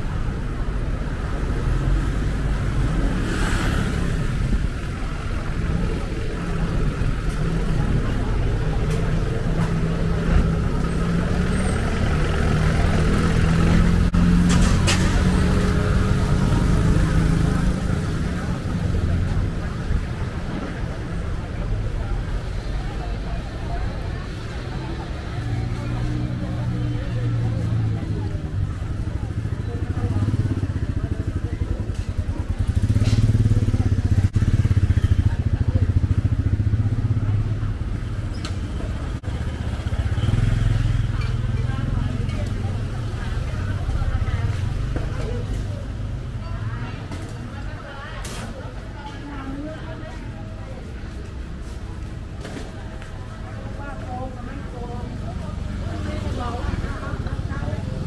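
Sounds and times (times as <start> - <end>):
street traffic: 0.0 - 58.0
motorcycle engine running: 27.6 - 46.4.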